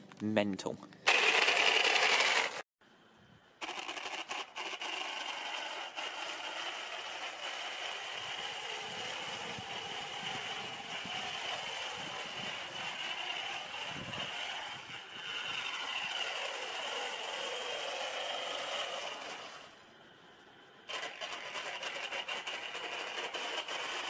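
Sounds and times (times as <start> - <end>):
rc car motor and gears rattling: 1.1 - 2.6, 3.6 - 19.8, 20.9 - 24.0
high-pitched electric motor whine: 3.6 - 19.9.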